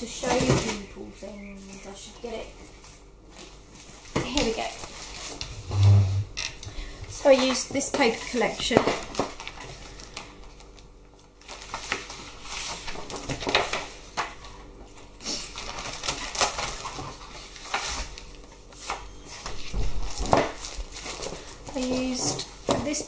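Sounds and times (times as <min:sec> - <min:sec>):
paper in plastic packet rustling: 0:08.0 - 0:14.6, 0:15.4 - 0:18.6.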